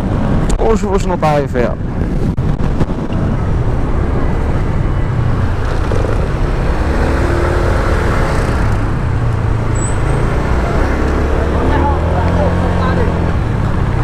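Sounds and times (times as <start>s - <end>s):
city traffic: 0.0s - 14.0s
wind and road noise: 0.0s - 14.0s
scooter engine running: 5.1s - 7.7s.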